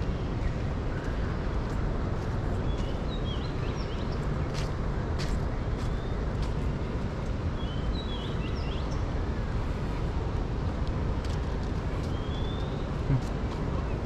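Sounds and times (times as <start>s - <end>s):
low outdoor rumble: 0.0s - 14.0s
birds chirping: 2.5s - 4.8s, 7.5s - 10.0s, 11.8s - 14.0s.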